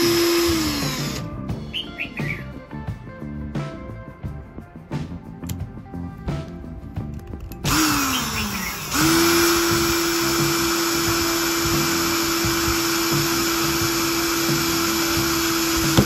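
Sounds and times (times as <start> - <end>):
small electric motor whine: 0.0 - 1.4, 7.6 - 16.0.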